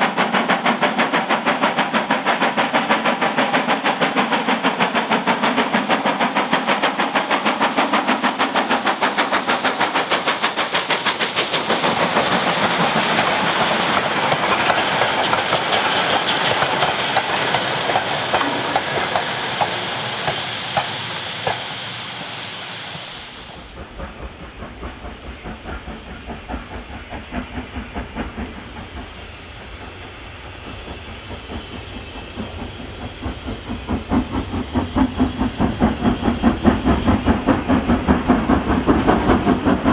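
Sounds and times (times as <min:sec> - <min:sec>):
deeper steam locomotive exhaust: 0:00.0 - 0:39.9
steam locomotive chuffing: 0:00.0 - 0:39.9.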